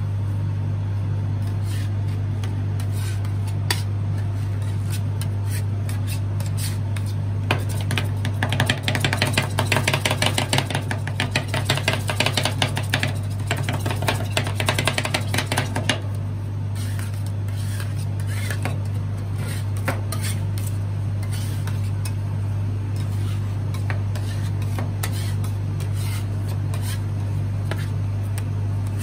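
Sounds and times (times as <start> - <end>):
machine humming low: 0.0 - 7.6.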